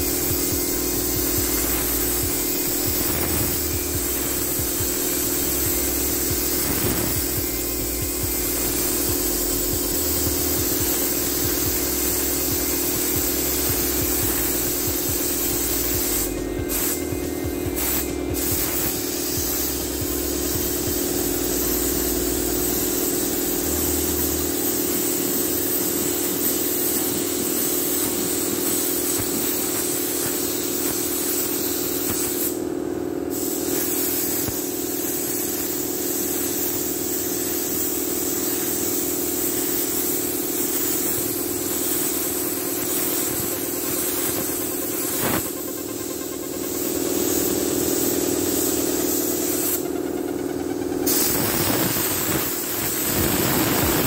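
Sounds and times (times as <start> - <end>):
machine hum: 0.0 - 26.8, 41.2 - 54.0
spray gun hissing: 0.0 - 54.0.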